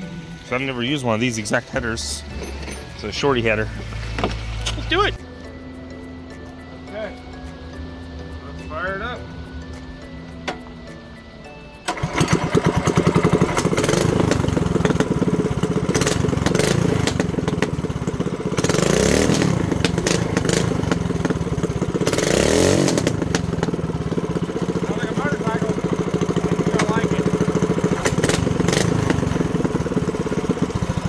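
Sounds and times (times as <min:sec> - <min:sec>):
loud exhaust pulses: 0:11.9 - 0:31.0
mini bike engine revving: 0:11.9 - 0:31.0.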